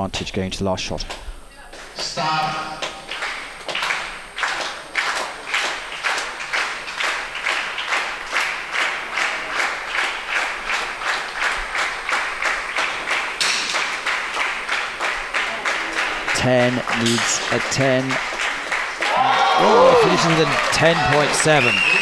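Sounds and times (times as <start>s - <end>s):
audience clapping in unison: 1.1s - 22.0s.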